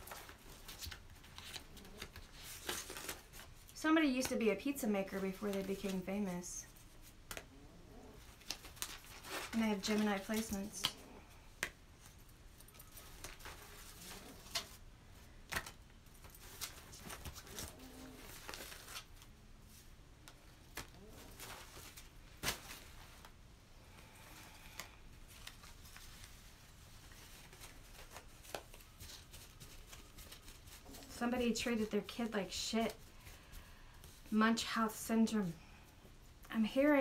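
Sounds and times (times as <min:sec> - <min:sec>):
paper rustling: 0:00.0 - 0:03.7, 0:08.2 - 0:23.4, 0:24.7 - 0:34.3.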